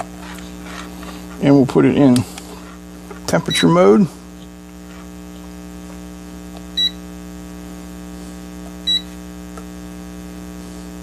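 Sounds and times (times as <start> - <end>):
low electrical hum: 0.0 - 11.0
multimeter key beeps: 3.4 - 3.8, 6.8 - 7.0, 8.8 - 9.1.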